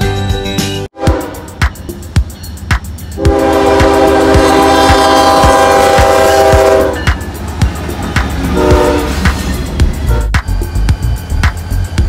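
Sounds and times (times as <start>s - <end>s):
locomotive air horn blast: 1.0s - 1.6s, 3.2s - 7.1s, 8.5s - 9.3s, 10.1s - 10.4s
crossing bell dinging: 1.0s - 12.0s.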